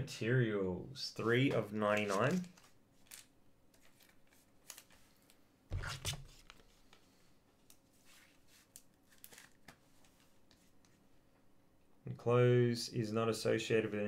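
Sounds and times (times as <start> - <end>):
cards rustling: 1.2 - 7.0, 7.9 - 10.7.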